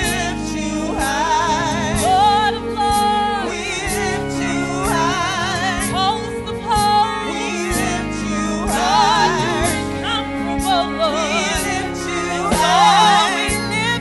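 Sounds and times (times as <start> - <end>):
group singing gospel with vibrato: 0.0 - 14.0
instrumental accompaniment with beat: 0.0 - 14.0.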